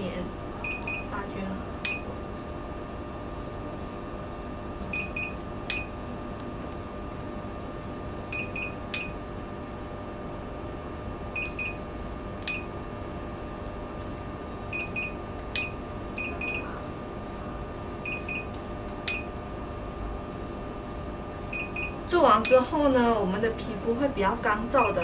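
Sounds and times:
steady electrical hum: 0.0s - 25.0s
short high-pitched beeps: 14.7s - 16.7s, 21.5s - 22.0s.

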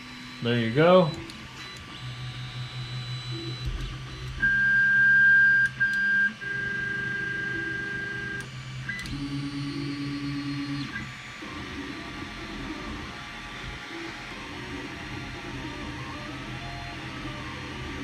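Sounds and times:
stepper motors whining: 0.0s - 5.1s
printer humming: 0.0s - 18.0s.

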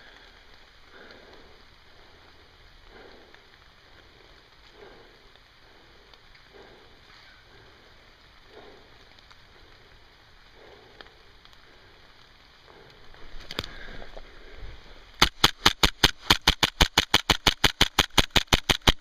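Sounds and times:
airsoft gun rapid fire: 15.2s - 19.0s.

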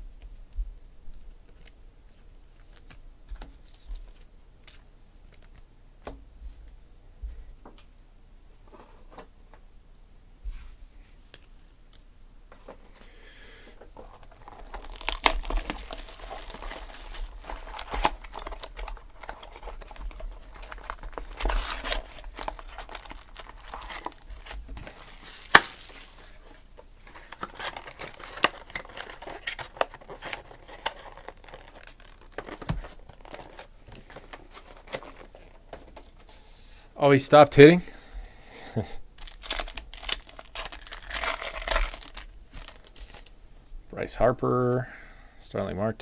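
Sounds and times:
foil wrappers crinkling and tearing: 13.9s - 35.6s, 39.2s - 43.3s.

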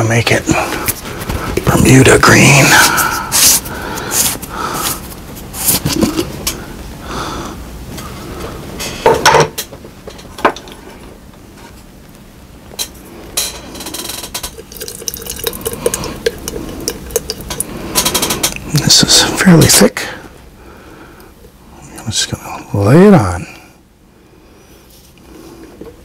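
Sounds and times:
liquid sloshing in plastic jar: 14.4s - 17.8s
stick stirring in jar: 14.4s - 18.6s.

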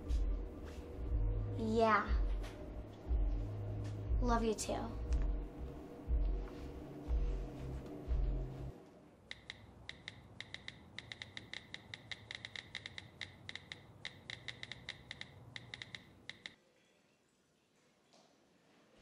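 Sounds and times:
muffled bass-heavy music: 0.0s - 8.8s
smartphone keyboard clicks: 9.3s - 16.6s.

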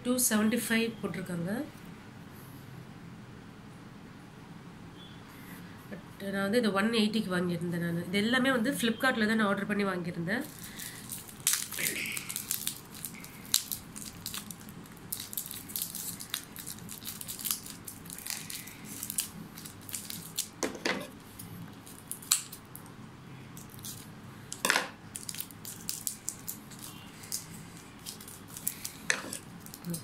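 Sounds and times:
plastic wrapping rustling: 10.4s - 22.9s, 23.6s - 30.0s.

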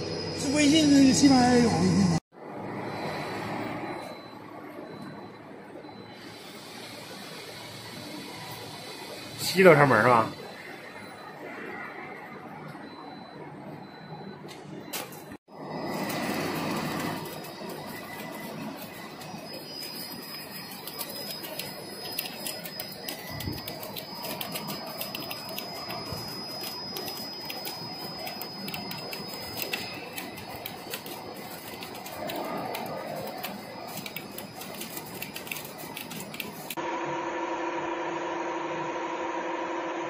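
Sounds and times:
machine hum with pitched tones: 0.0s - 14.9s, 15.5s - 40.0s
machine high whine: 0.0s - 40.0s
rapid metallic clicking: 16.6s - 36.8s.

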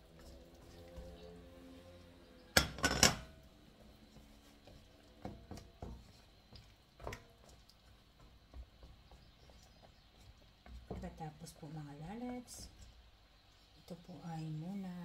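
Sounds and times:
loud metal clanks on wok: 2.6s - 3.3s
wooden spoon knocking in pan: 5.2s - 11.6s.

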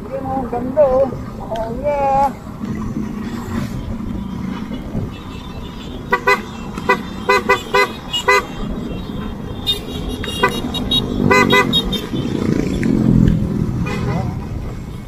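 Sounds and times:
low rumble of engines: 0.0s - 15.0s
road noise: 0.0s - 15.0s
motorcycle horns tooting: 3.3s - 13.1s, 13.8s - 15.0s.

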